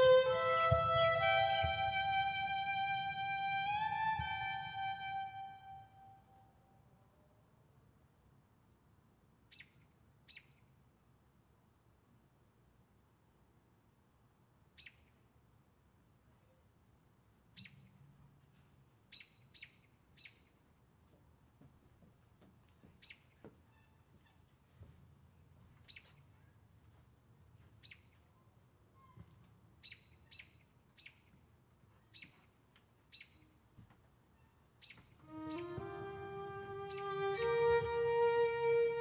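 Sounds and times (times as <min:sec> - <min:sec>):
bird chip calls: 0:34.3 - 0:35.9, 0:36.6 - 0:37.9.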